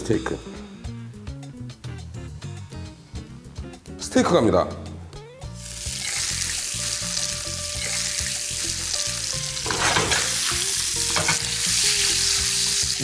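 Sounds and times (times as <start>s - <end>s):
steak sizzling in frying pan: 5.6s - 13.0s.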